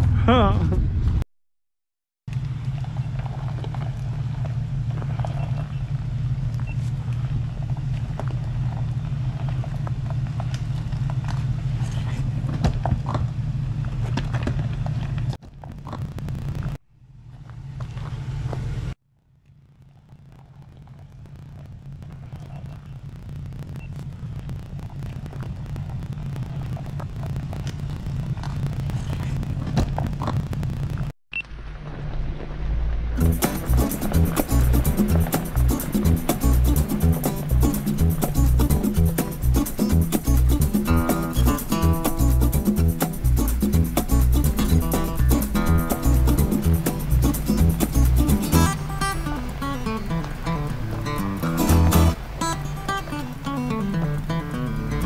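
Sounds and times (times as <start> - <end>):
engine running at low speed: 0.0 - 1.2, 2.3 - 19.0, 31.5 - 55.0.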